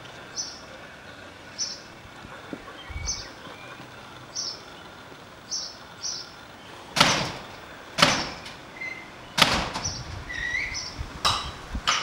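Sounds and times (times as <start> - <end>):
garage door banging: 6.9 - 12.0.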